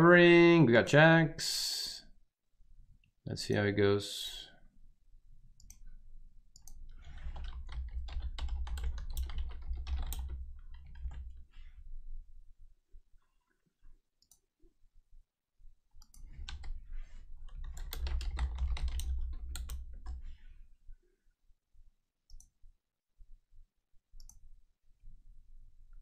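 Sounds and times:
keyboard typing: 6.6 - 11.4, 16.0 - 16.8, 17.4 - 20.2.

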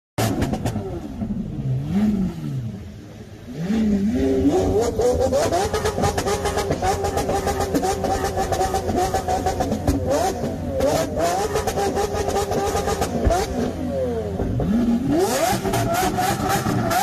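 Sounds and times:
car engine revving: 0.2 - 17.0.

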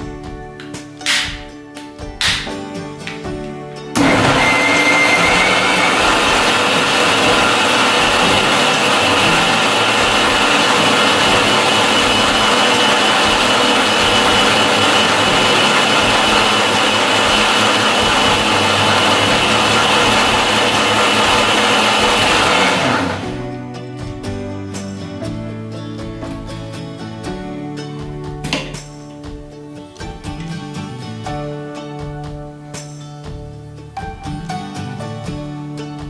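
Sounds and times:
mixer grinder motor whining: 4.0 - 23.4.

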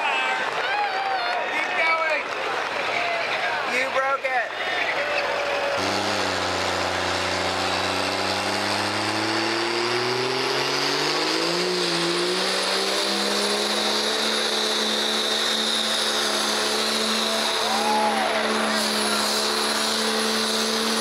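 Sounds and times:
diesel engine revving: 5.2 - 21.0.

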